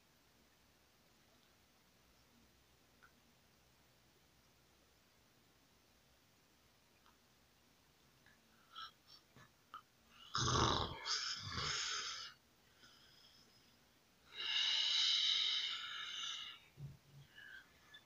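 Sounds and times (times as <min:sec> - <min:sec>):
person snoring: 0:10.2 - 0:12.4, 0:14.3 - 0:16.6.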